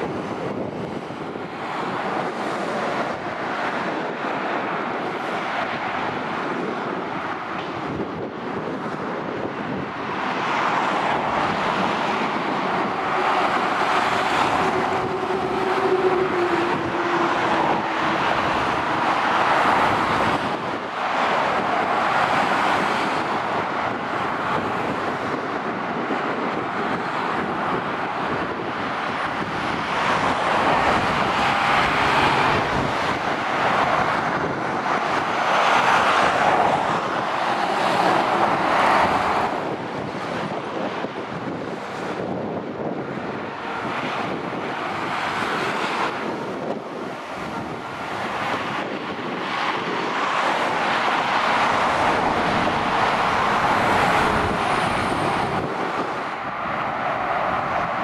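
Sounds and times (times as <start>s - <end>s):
cars and lorries passing: 0.0s - 58.0s
truck engine hum: 7.8s - 41.6s, 46.2s - 58.0s.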